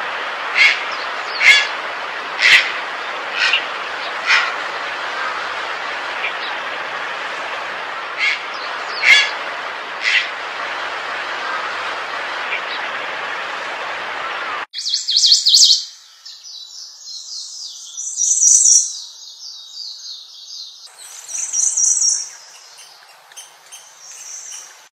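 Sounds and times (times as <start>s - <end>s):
steady rushing noise: 0.0s - 14.7s
warbler singing trilled phrases: 14.8s - 24.9s.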